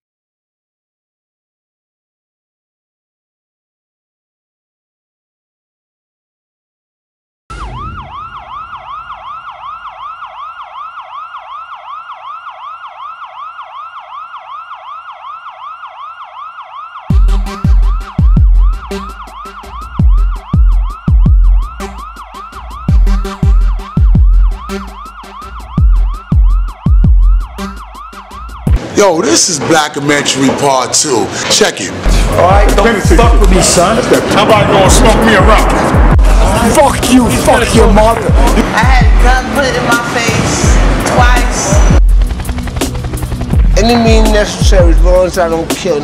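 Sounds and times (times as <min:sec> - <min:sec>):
siren in fast yelp: 0:07.5 - 0:28.8, 0:32.6 - 0:46.0
music beat with heavy bass drum: 0:17.1 - 0:28.8, 0:32.1 - 0:34.1, 0:34.8 - 0:45.9.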